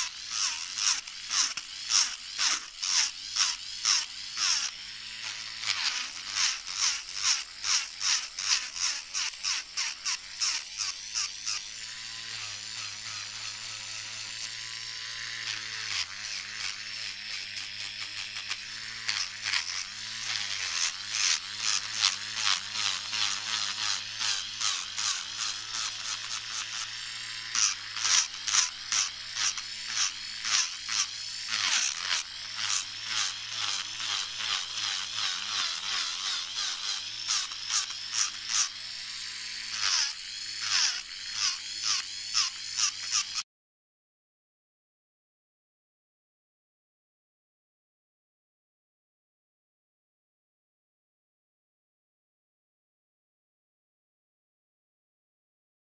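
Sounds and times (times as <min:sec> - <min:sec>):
electric nail drill grinding: 0:00.0 - 0:43.5.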